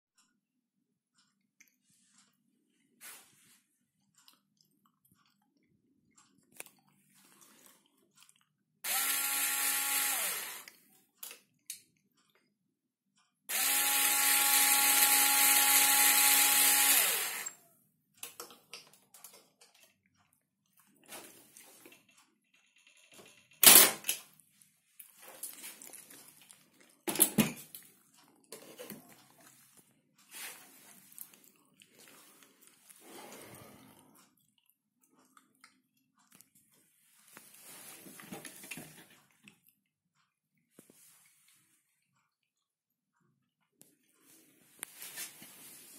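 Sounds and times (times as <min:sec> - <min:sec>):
electric screwdriver turning grinder: 0:08.8 - 0:10.8, 0:13.5 - 0:17.6
coffee grinding hiss: 0:08.9 - 0:10.7, 0:13.5 - 0:17.6.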